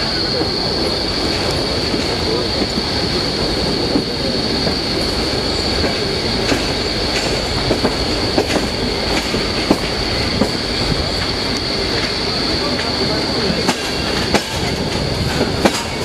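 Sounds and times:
train wheels rumbling on rail: 0.0 - 16.0
wheels clicking over rail joints: 3.8 - 16.0.

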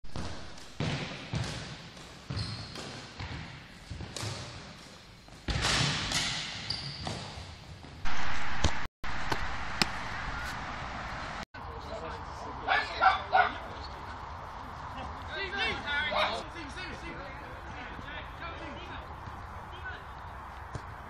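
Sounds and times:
sneakers squeaking: 0.1 - 8.0
steady rush of noise: 8.0 - 21.0.

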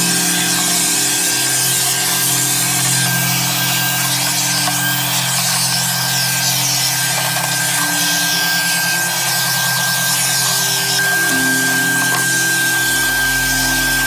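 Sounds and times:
shop vacuum whine: 0.0 - 14.0.

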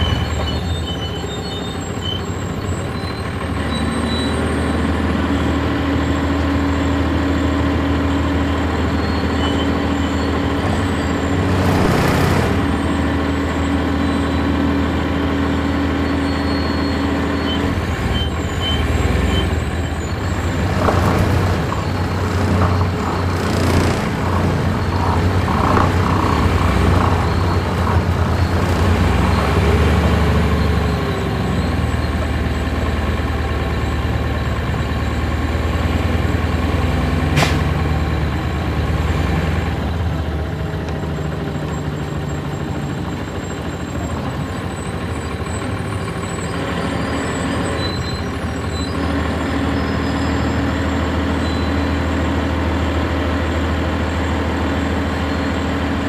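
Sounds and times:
bus diesel engine droning: 0.0 - 56.0
sharp click: 37.4 - 37.7.

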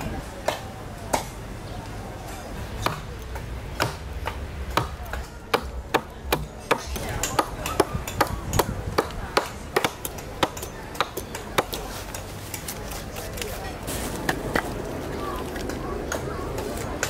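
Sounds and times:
adze chopping wood: 2.8 - 11.9.

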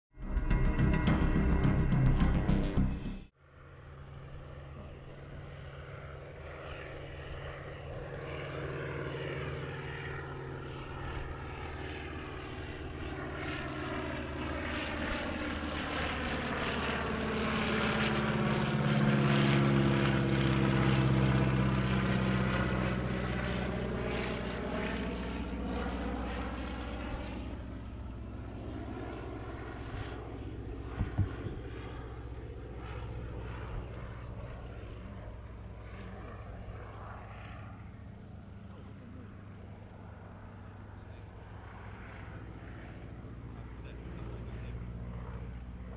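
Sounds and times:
propeller plane droning past: 0.2 - 45.9
short knocks: 31.0 - 31.6.

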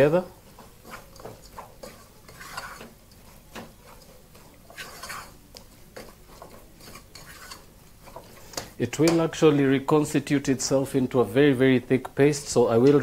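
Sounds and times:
spoon scraping and knocking pot: 0.8 - 8.7.

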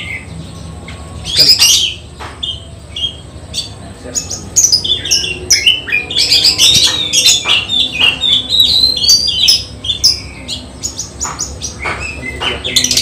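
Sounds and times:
bird singing whistles and chirps: 1.2 - 11.0.

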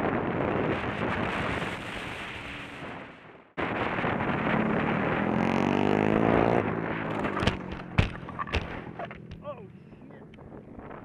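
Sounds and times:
vehicle noise: 0.0 - 11.0
wind rush: 0.0 - 11.0
engine accelerating: 4.2 - 9.4
sharp knocks: 7.2 - 9.4.

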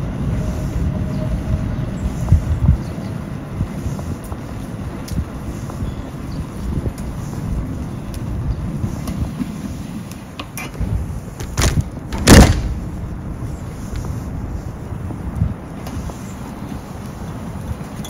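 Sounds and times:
wind buffeting microphone: 0.0 - 18.0
loud short bump: 10.8 - 12.8.

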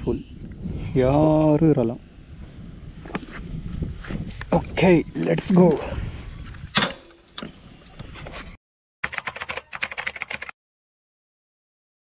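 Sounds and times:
wind noise: 0.0 - 8.6
rapid sharp clicks: 9.0 - 10.6.

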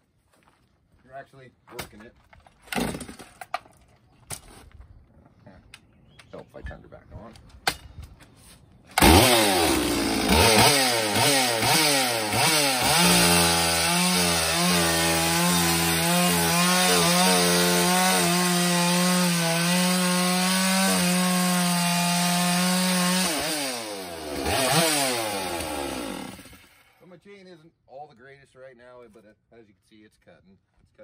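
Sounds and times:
chainsaw revving and cutting wood: 9.0 - 27.0.

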